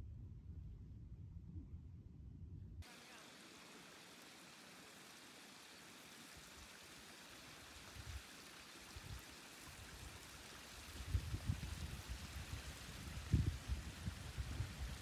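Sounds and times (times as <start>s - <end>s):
wind buffeting microphone: 10.8s - 15.0s.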